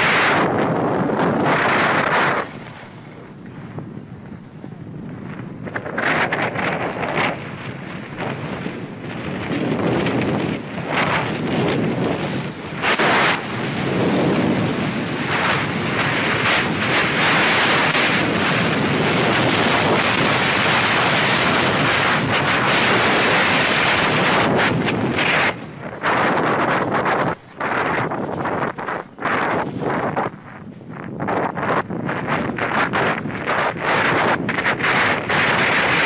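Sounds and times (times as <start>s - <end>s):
wind rushing over microphone: 0.0s - 36.0s.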